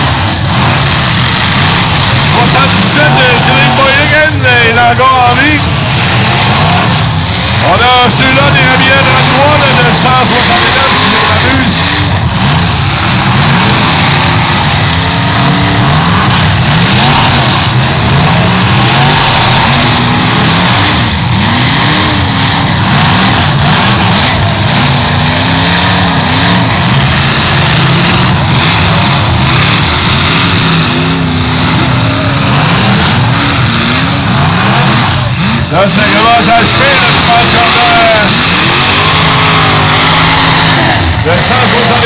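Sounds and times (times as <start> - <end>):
car engines revving: 0.0 - 42.0.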